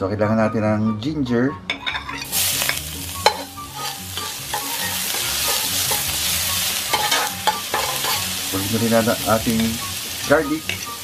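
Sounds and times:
metal ladle knocking on pan: 1.7 - 6.1, 6.9 - 8.2
ginger sizzling in hot oil: 2.2 - 11.0.

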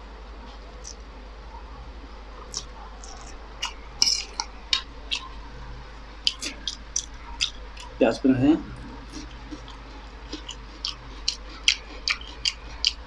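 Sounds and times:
wet slurps and smacks eating: 8.8 - 13.0.

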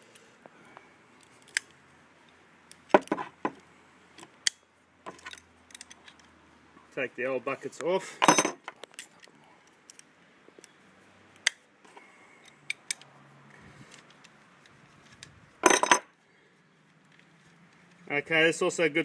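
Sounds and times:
metal parts clattering: 8.2 - 9.2, 15.6 - 16.1.

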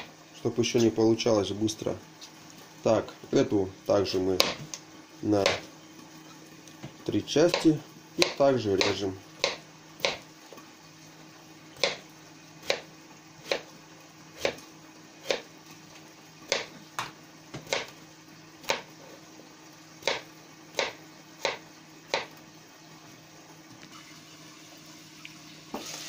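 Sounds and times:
knife slicing potato: 7.4 - 10.2, 12.6 - 13.7, 14.4 - 14.6, 15.2 - 15.5, 17.6 - 18.0, 20.0 - 22.3.

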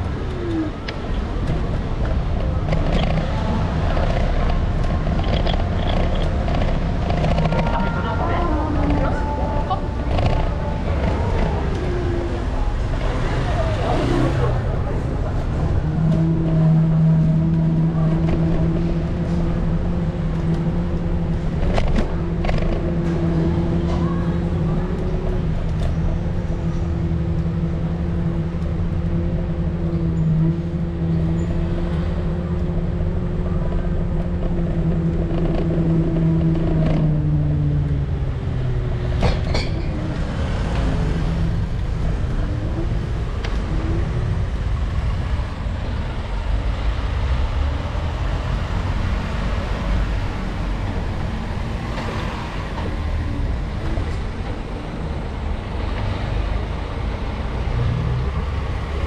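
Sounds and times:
road rumble: 0.0 - 59.0
wind: 0.0 - 59.0
sharp clicks and rattles: 0.9 - 8.1, 10.0 - 11.8, 20.3 - 23.0.

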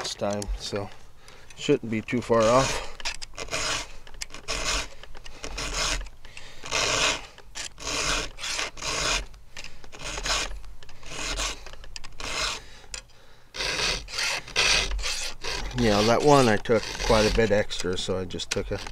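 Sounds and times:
file rasping on saw chain: 2.3 - 6.1, 6.7 - 9.3, 10.0 - 12.6, 13.6 - 18.9.

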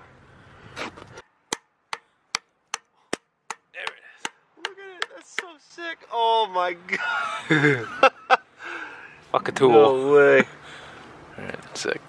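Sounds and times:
hammer striking metal drift: 1.5 - 5.6.

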